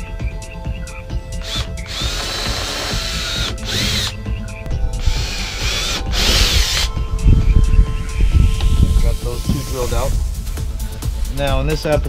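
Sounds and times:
cordless drill boring plastic: 1.4s - 4.1s, 5.0s - 6.9s.

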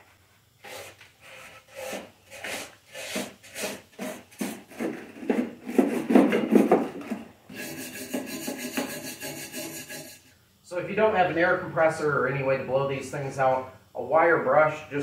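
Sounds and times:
wire brush scrubbing: 0.6s - 6.1s, 7.5s - 10.3s
steady scraping: 0.6s - 10.3s.

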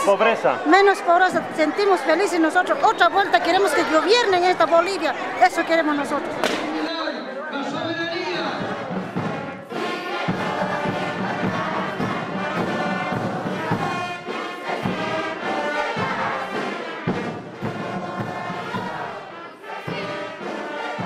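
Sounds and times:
brass music: 7.6s - 21.0s.

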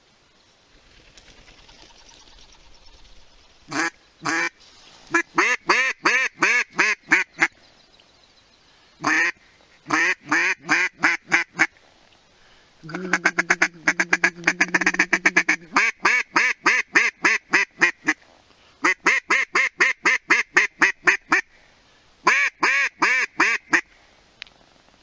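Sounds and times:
duck call quacks: 3.7s - 4.5s, 5.1s - 7.5s, 9.0s - 11.7s, 12.9s - 18.2s, 18.8s - 21.5s, 22.2s - 23.9s
duck call notes over drone: 5.1s - 7.5s, 12.9s - 18.2s, 22.2s - 23.9s.

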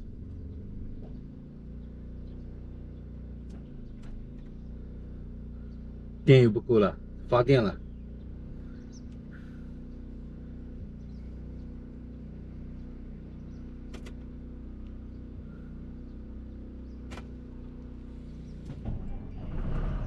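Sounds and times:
truck engine idling: 0.0s - 20.0s
clicks in truck cab: 13.8s - 15.0s, 17.0s - 17.4s.

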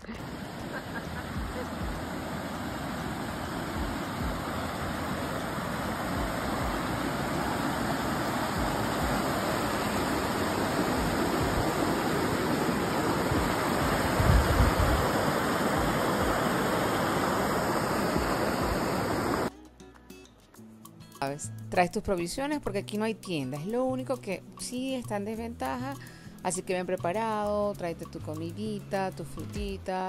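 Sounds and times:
stream rushing over rocks: 0.0s - 19.5s.

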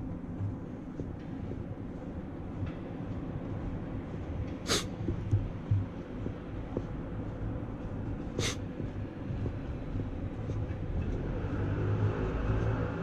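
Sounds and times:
distant traffic rumble: 0.0s - 13.0s
short sharp hiss: 4.7s - 4.9s
vehicle engine approaching: 7.0s - 13.0s.

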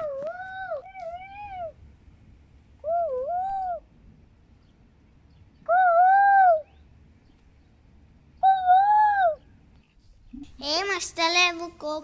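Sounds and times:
child imitating bird call: 2.8s - 3.9s, 5.6s - 6.8s, 8.4s - 9.5s.

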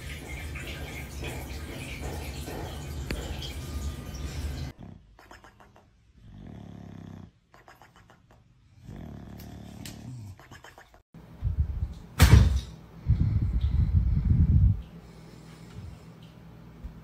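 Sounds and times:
dog snoring: 4.8s - 5.1s, 6.2s - 7.4s, 8.8s - 10.4s.

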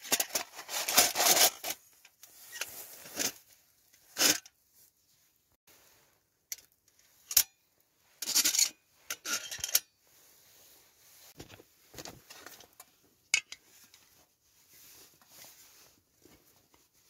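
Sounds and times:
thin metal parts scraping: 8.2s - 9.9s.

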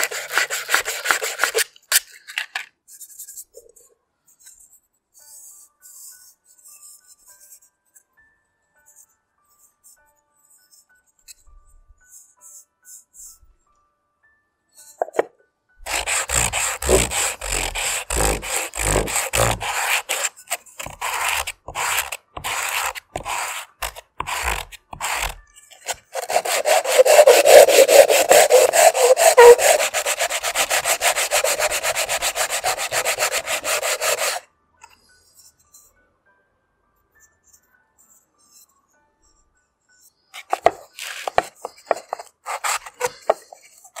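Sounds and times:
coconut shell scraped on sandpaper: 0.0s - 1.8s, 15.8s - 34.4s, 40.4s - 44.0s.

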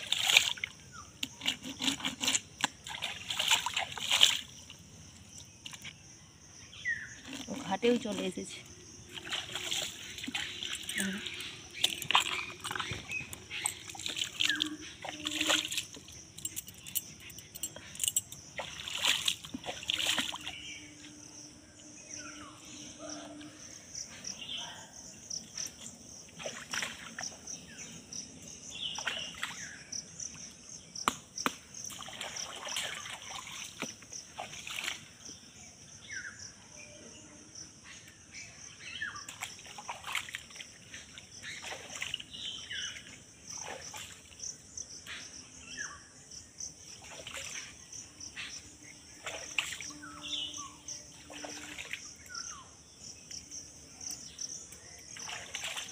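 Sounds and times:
water splashing and sloshing: 0.0s - 21.5s, 25.0s - 36.5s, 38.6s - 45.4s, 46.5s - 55.9s
high insect drone: 0.0s - 55.9s.

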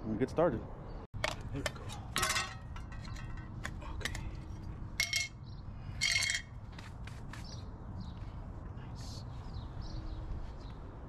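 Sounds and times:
metal scraper clinking tin can: 2.2s - 3.4s.

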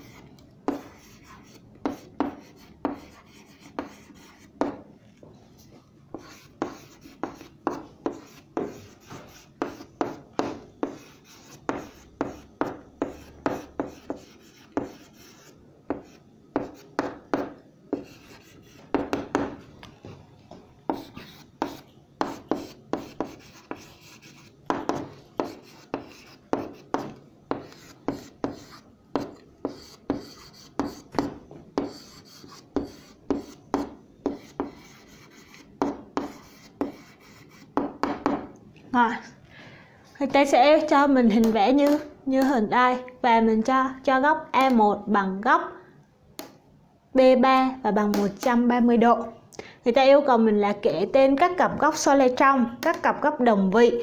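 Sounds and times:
pen scraping on paper: 0.0s - 4.5s, 6.2s - 10.2s, 10.8s - 19.0s, 20.9s - 37.7s.

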